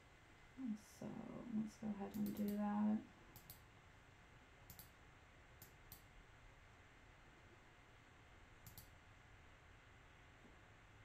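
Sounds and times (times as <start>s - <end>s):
faint computer mouse clicks: 2.1s - 2.6s, 3.3s - 3.7s, 4.7s - 5.0s, 5.6s - 6.1s, 8.6s - 9.0s.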